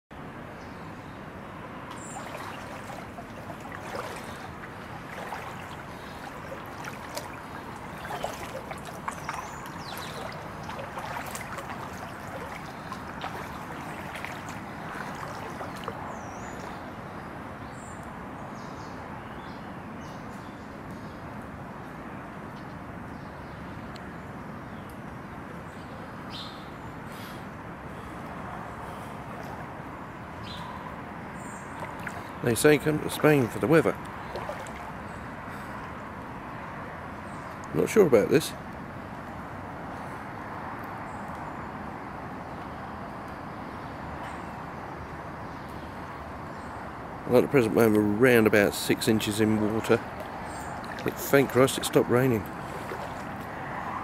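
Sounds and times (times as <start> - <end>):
steady wash of noise: 1.6 - 16.8
light clicks and small splashes: 1.8 - 16.9, 30.4 - 36.7, 37.3 - 37.8, 40.7 - 41.5, 47.8 - 54.0.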